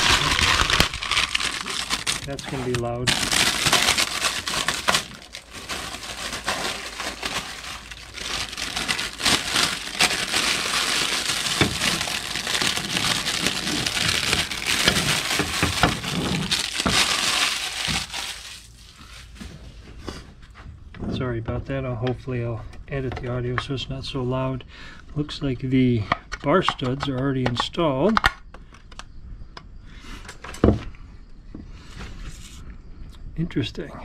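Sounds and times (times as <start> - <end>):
plastic packaging crinkling: 0.0 - 19.6.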